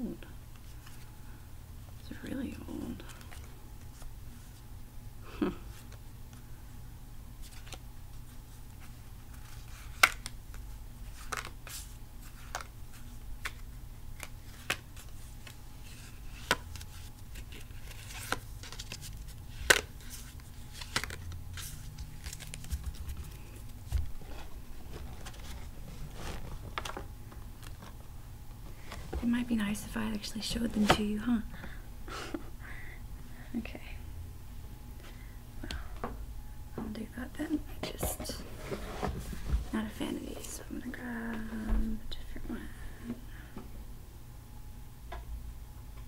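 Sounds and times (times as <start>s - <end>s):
low background hum: 0.0s - 46.0s
paper cards clicking and snapping: 9.4s - 10.6s, 11.2s - 12.7s, 13.4s - 15.6s, 16.4s - 23.7s.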